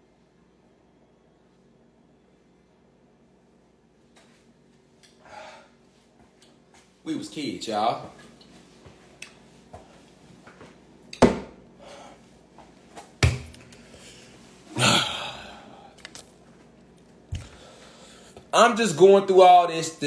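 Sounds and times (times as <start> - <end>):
knocks and thuds of handling: 11.2 - 11.6.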